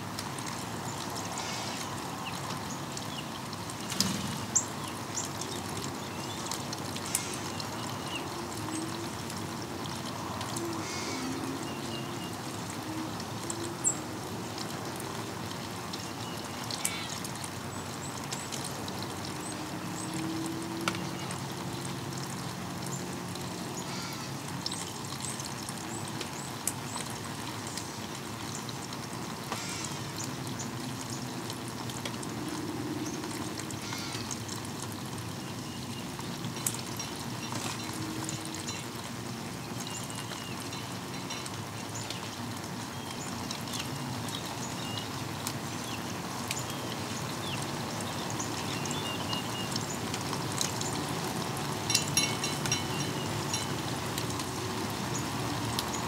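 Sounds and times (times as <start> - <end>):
rain falling and trickling: 0.0 - 56.0
small birds chirping: 0.9 - 9.0, 39.5 - 50.1.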